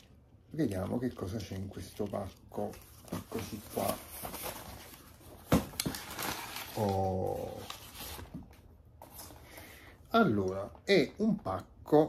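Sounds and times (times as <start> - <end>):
cardboard rustling and scraping: 2.6 - 9.4.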